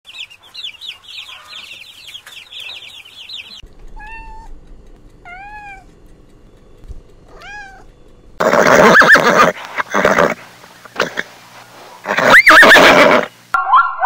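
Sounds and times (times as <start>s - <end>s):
chicks peeping: 0.1s - 4.5s
kittens meowing: 3.9s - 4.6s, 5.2s - 5.9s, 7.3s - 7.9s.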